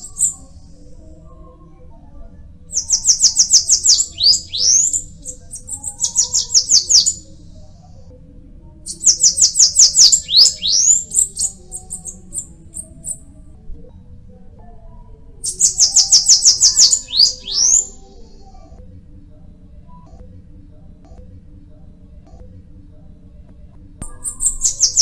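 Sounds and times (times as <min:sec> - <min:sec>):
bird singing high thin notes: 0:08.9 - 0:12.0, 0:15.5 - 0:18.0.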